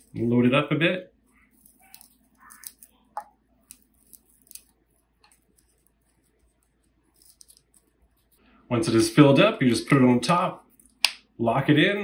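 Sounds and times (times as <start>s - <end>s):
dry plant matter crackling: 1.2s - 8.4s
small crisp snaps: 10.7s - 11.3s.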